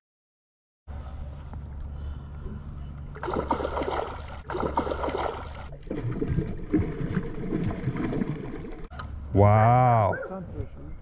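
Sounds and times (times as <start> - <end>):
fish thrashing and splashing: 3.1 - 8.9.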